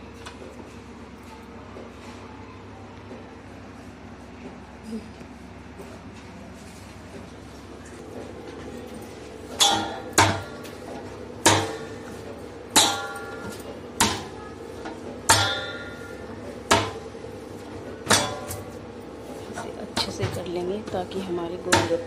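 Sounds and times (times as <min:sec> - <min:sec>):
dough thumping in steel bowl: 0:09.5 - 0:22.0.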